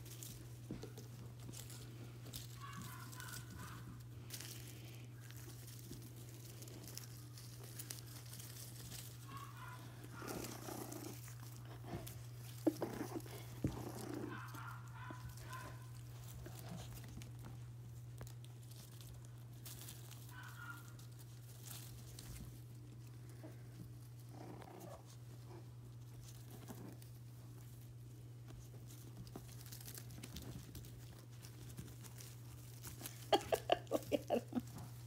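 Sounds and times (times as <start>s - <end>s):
puppies scuffling: 0.0s - 35.0s
puppy yapping: 2.6s - 3.9s, 9.2s - 10.6s, 13.1s - 15.9s, 20.3s - 21.0s.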